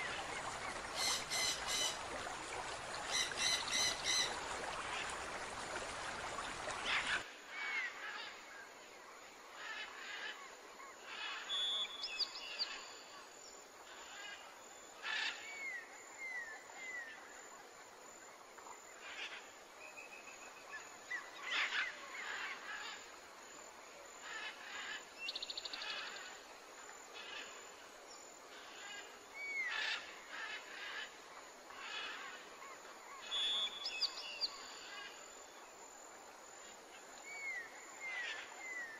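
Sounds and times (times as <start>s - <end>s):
running water: 0.0s - 7.3s.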